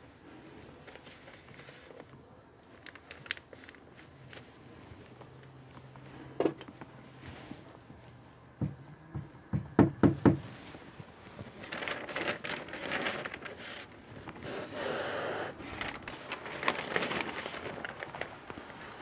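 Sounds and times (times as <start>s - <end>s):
paper sheet rustling and crackling: 0.0s - 5.8s, 10.5s - 14.8s, 15.5s - 19.0s.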